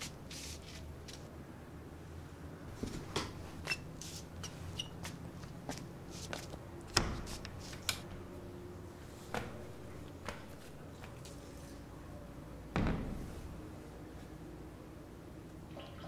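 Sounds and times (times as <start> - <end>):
footsteps in sandals on hard floor: 2.8 - 6.6.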